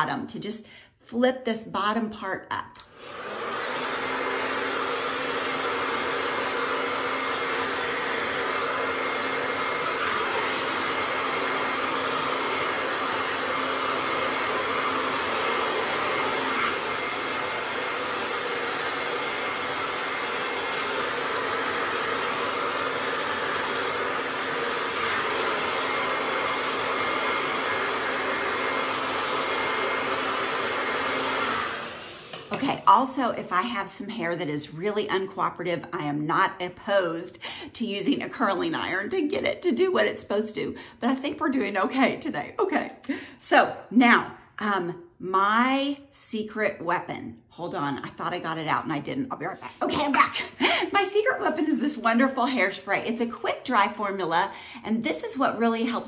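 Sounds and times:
hair dryer running: 2.8 - 43.9, 47.6 - 56.0.

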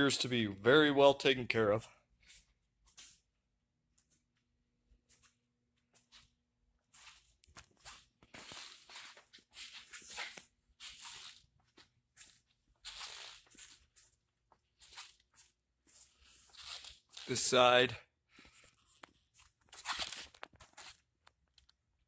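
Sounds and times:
footstep scuffing and rustling: 1.5 - 17.8.

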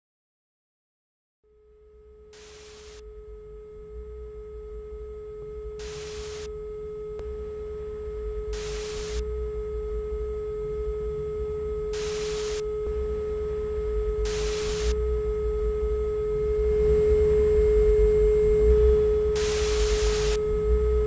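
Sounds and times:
bursts of hiss: 5.8 - 6.5, 8.6 - 9.2, 12.0 - 12.6, 14.3 - 14.9, 19.4 - 20.4
electronic drone tone: 5.8 - 6.5, 8.5 - 9.4, 11.9 - 21.0.

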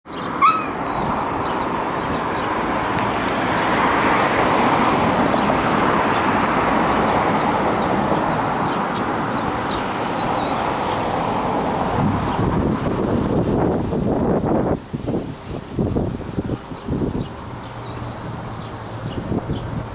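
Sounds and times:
dogs whining: 0.1 - 1.7, 6.6 - 10.7, 16.4 - 18.9.

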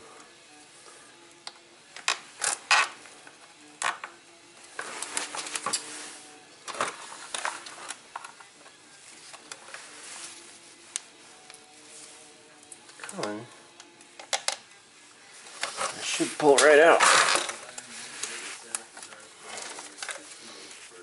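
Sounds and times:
plastic connector clicking: 13.8 - 14.6.

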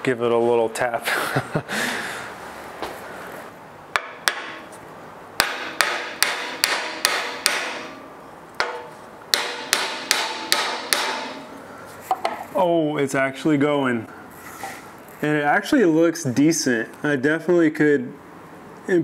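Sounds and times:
hammer tapping wooden joint: 4.0 - 4.6, 5.4 - 8.0, 8.6 - 11.4.

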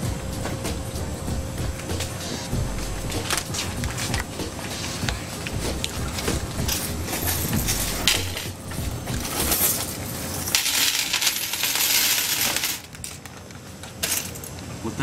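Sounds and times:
coins clattering onto glass: 5.9 - 13.2, 14.0 - 14.6.

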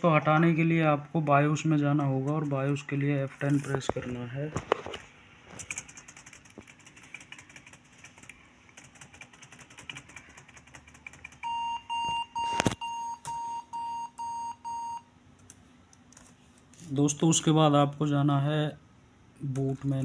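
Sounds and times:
rapid key tapping: 5.6 - 11.5.

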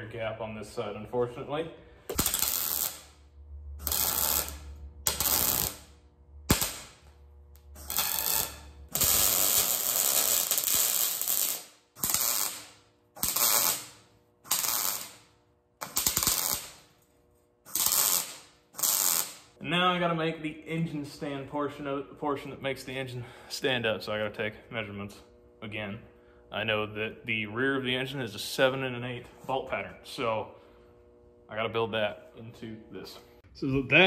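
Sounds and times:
welding arc crackling: 2.0 - 19.6.

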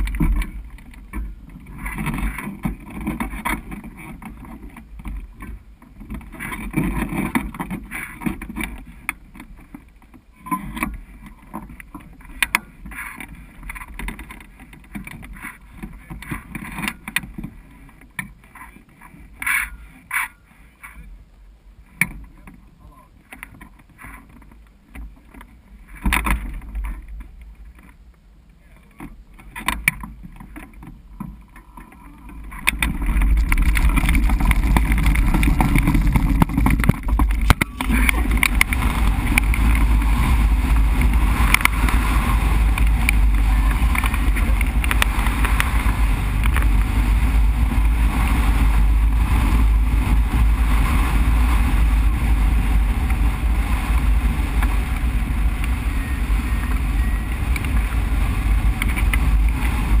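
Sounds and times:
wind buffeting microphone: 29.8 - 60.0.

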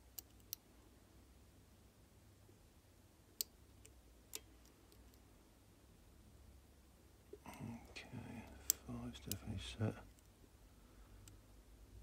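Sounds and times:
faint metallic lock picking clicks: 8.4 - 10.3.

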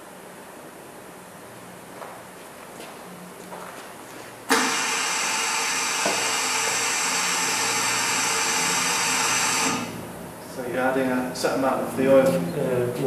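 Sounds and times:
machine motor whirring: 4.5 - 10.1.

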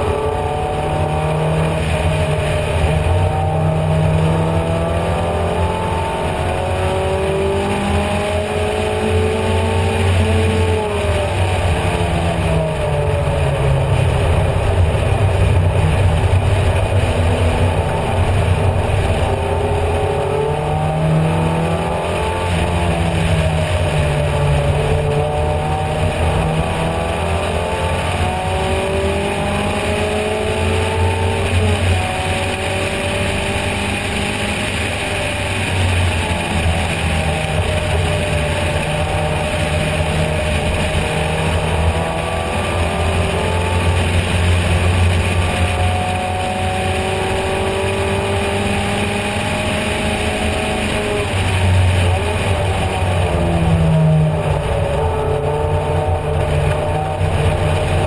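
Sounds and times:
car engine pulling hard: 0.0 - 58.0.

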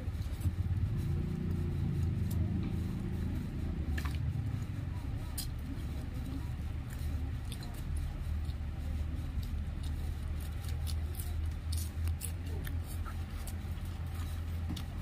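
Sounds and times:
steady low hum: 0.0 - 15.0
chewing: 0.7 - 15.0
clicks and smacks of eating: 9.4 - 15.0.

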